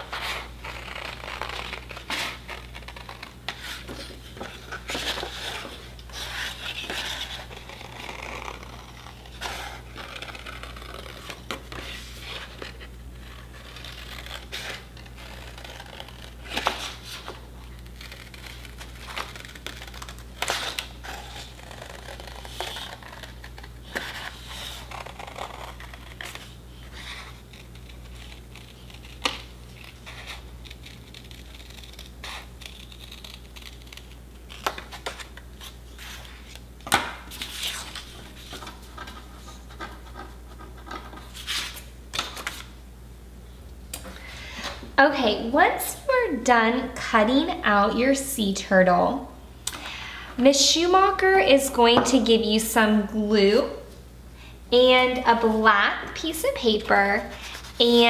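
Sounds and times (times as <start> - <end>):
paper rustling: 0.0 - 42.7
scissors snipping paper: 17.8 - 26.4, 27.5 - 35.2.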